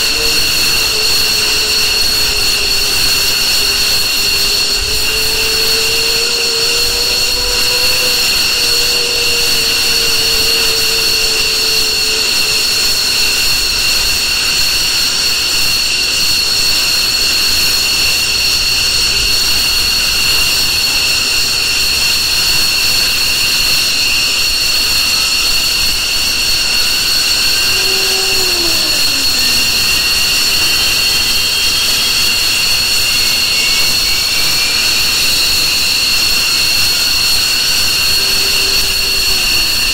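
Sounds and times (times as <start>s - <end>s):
faint rising tone: 0.0s - 13.4s, 27.3s - 31.9s
jet engines whining: 0.0s - 16.0s, 25.6s - 39.9s.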